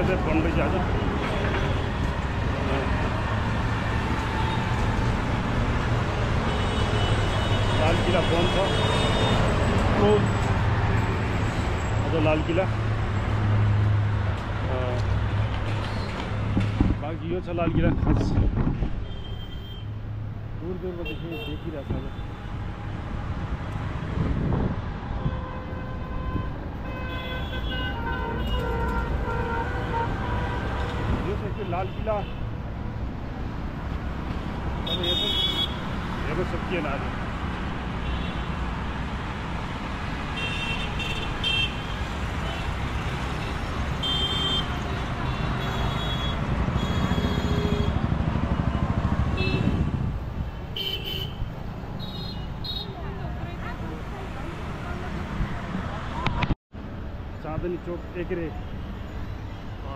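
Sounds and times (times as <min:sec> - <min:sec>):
road traffic hum: 0:00.0 - 0:59.9
vehicle horns: 0:06.4 - 0:09.6, 0:25.1 - 0:32.5, 0:34.8 - 0:36.0, 0:40.3 - 0:50.0, 0:50.6 - 0:53.0.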